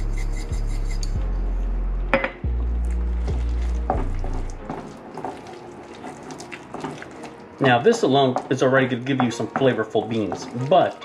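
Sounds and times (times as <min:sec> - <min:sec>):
background music with deep bass: 0:00.0 - 0:11.0
wooden spoon scraping a pan: 0:03.0 - 0:11.0.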